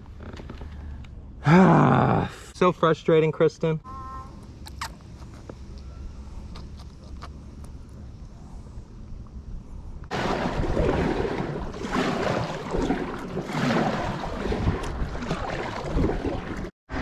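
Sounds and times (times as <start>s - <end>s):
water splashing from paddling: 10.1s - 16.7s.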